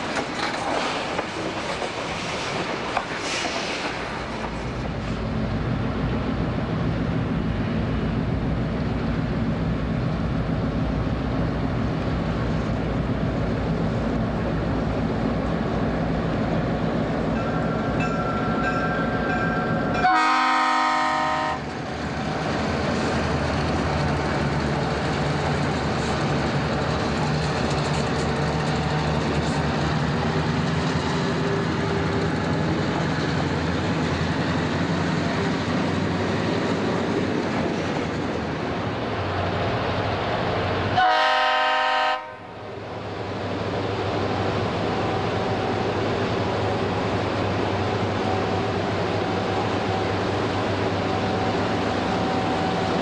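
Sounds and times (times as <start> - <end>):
diesel locomotive engine drone: 0.0 - 53.0
locomotive horn blast: 20.0 - 21.6, 41.0 - 42.5.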